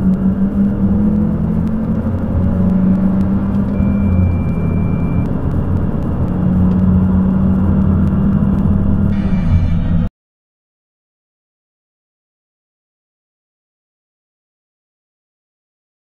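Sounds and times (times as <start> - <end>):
car engine accelerating: 0.0 - 10.1.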